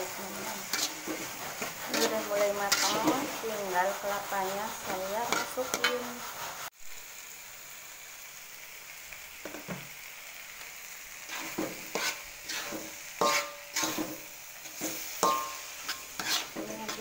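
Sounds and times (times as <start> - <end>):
metal spatula scraping a wok: 0.0 - 6.7, 11.1 - 17.0
paste sizzling in a wok: 0.0 - 17.0.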